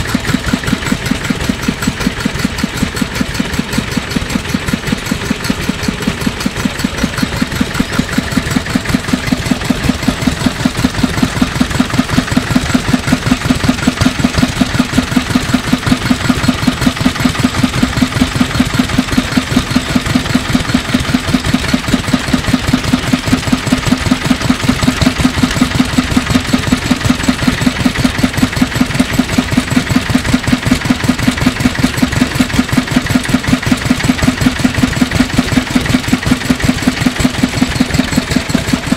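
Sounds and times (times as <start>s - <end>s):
diesel engine idling: 0.0s - 38.9s.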